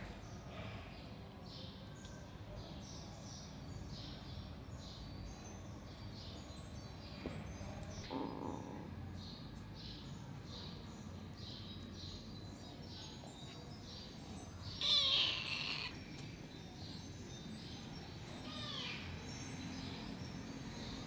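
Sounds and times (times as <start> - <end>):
kitten meowing: 14.8 - 16.0.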